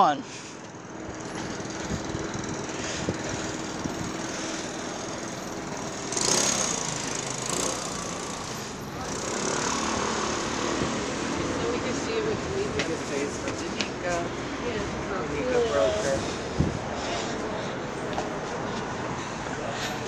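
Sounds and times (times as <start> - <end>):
rush of traffic: 0.0 - 20.0
vehicle engine running: 0.7 - 13.2.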